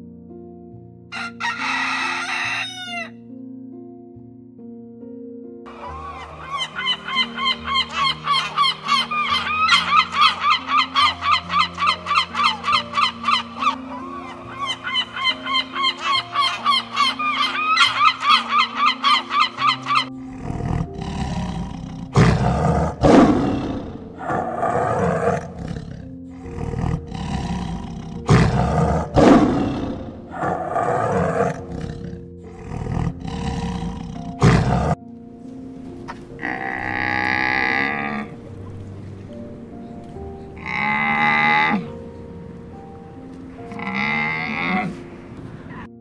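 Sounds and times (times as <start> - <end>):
background music: 0.0 - 46.0
drawn-out animal call: 5.7 - 23.4
honking bird calls: 5.7 - 25.4
tiger roaring and growling: 19.2 - 35.0, 36.4 - 38.4, 40.6 - 42.0, 43.7 - 45.9.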